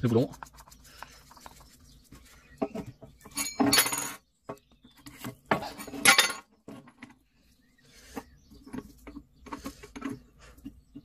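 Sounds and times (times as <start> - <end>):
metal tools clinking and knocking: 3.2 - 4.2, 5.5 - 7.2.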